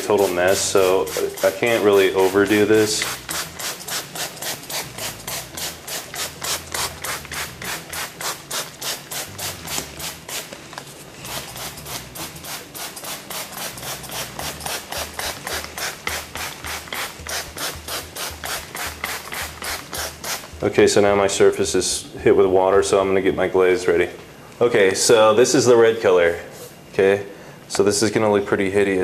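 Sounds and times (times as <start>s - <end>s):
spray bottle squirting: 0.0s - 20.6s.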